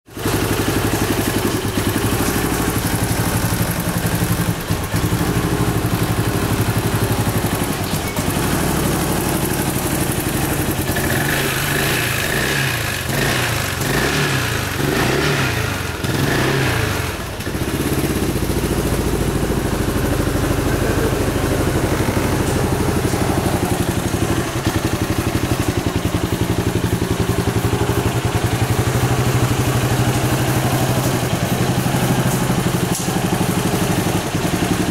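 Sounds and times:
scooter engine idling and revving: 0:00.0 - 0:34.9.

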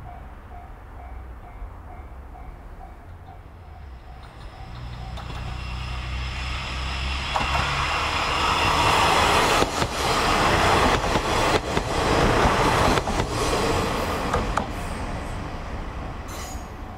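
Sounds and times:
train wheel rumble: 0:00.0 - 0:16.9
wheels clacking over rail joints: 0:01.9 - 0:05.8, 0:07.2 - 0:14.8.

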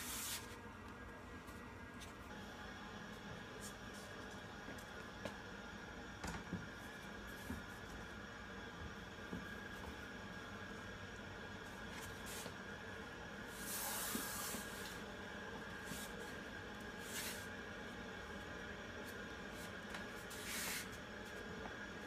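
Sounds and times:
palms brushing on wood: 0:00.0 - 0:00.6, 0:13.5 - 0:15.0, 0:17.0 - 0:17.6, 0:19.0 - 0:21.4
faint room hum: 0:00.0 - 0:22.0.

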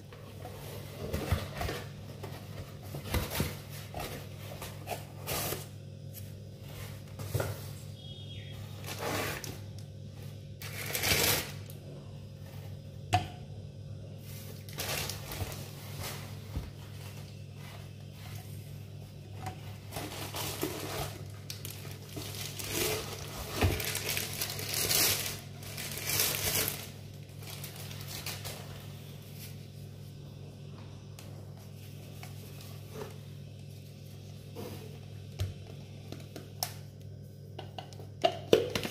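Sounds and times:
cardboard and plastic rustling: 0:00.0 - 0:11.7, 0:14.2 - 0:29.9.

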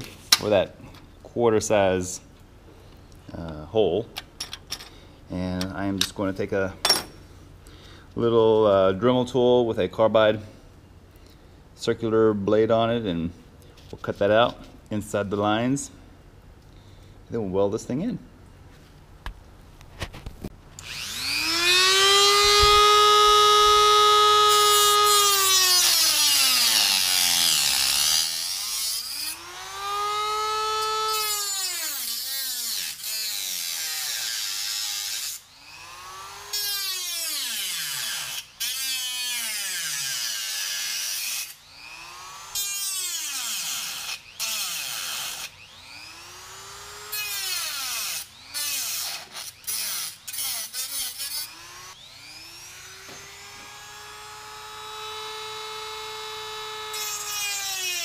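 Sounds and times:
rotary tool cutting sheet steel: 0:20.8 - 0:58.0.

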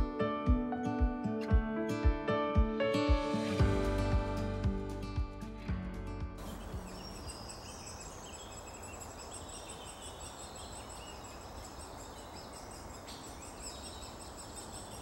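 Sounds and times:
small birds chirping: 0:06.4 - 0:15.0.

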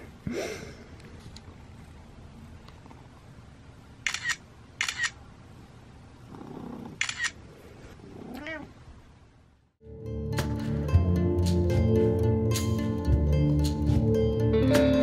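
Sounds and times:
cat meowing: 0:08.3 - 0:08.7.

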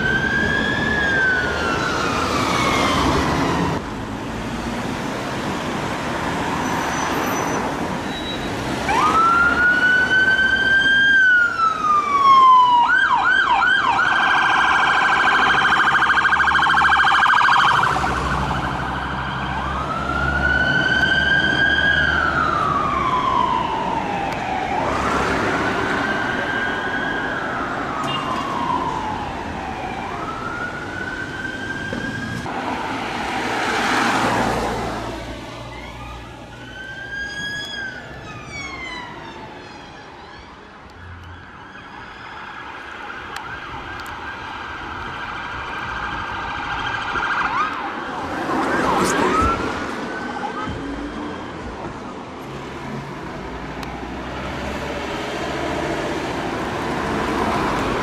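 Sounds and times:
fire engine siren wailing and yelping: 0:00.0 - 0:03.8, 0:08.2 - 0:52.2
passing traffic: 0:00.0 - 0:58.0.

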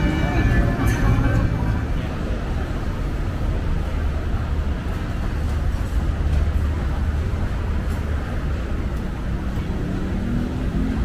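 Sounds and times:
low background rumble: 0:00.0 - 0:09.6.

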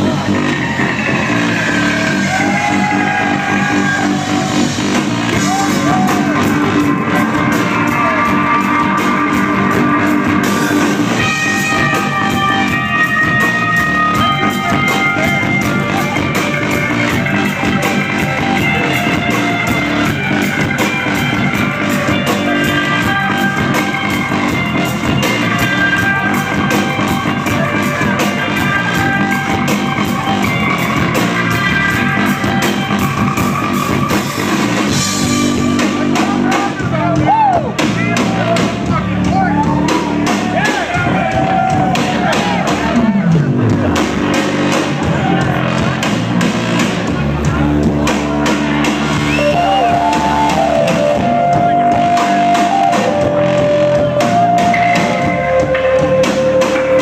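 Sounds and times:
drum beat: 0:00.0 - 0:57.0
electric guitar: 0:00.0 - 0:57.0.

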